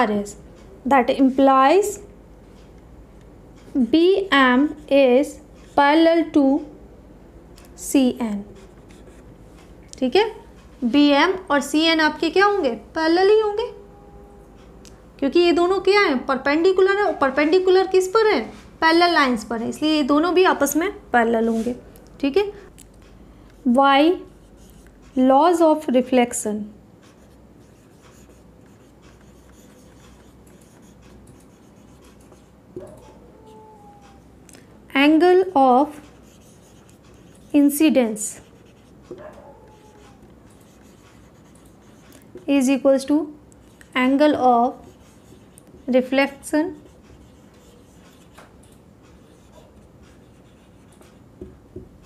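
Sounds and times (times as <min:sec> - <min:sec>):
marker writing on whiteboard: 0:08.4 - 0:09.7, 0:23.6 - 0:25.6, 0:27.0 - 0:32.9, 0:35.8 - 0:42.6, 0:43.6 - 0:51.9.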